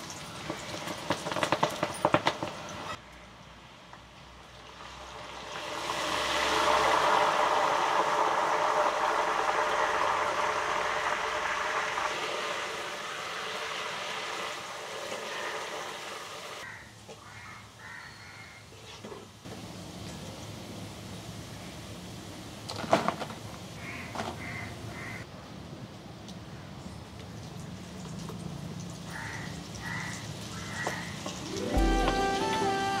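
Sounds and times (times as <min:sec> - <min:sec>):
food sizzling in hot oil: 0:04.5 - 0:16.7, 0:27.5 - 0:33.0.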